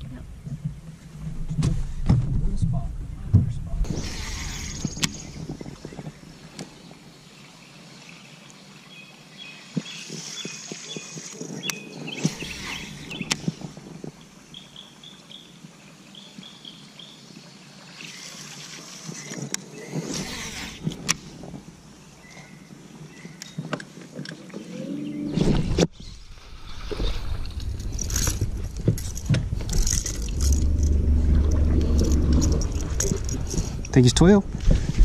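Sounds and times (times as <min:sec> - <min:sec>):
low rumbling noise: 0:00.0 - 0:06.6, 0:24.8 - 0:35.0
small birds chirping: 0:04.2 - 0:13.7.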